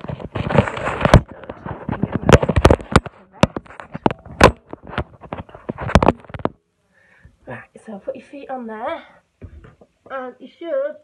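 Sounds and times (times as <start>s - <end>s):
camera handling knocks and rubs: 0.0s - 6.6s.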